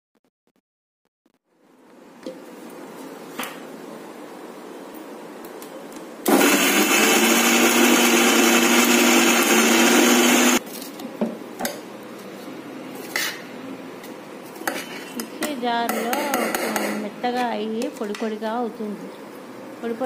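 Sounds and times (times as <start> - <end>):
mixer grinder running: 6.3 - 10.6.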